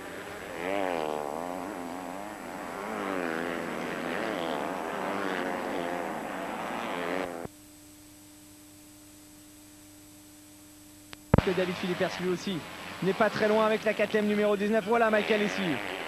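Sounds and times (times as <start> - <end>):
motocross bike engines revving: 0.0 - 7.4, 11.4 - 16.0
faint steady tone: 0.0 - 15.8.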